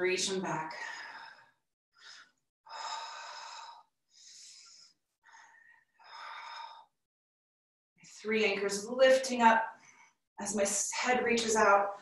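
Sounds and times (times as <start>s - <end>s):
woman breathing heavily: 0.7s - 7.0s.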